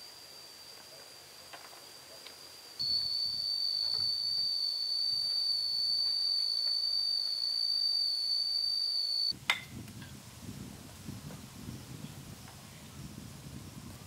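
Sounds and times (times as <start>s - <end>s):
insect high-pitched whine: 0.0s - 9.4s.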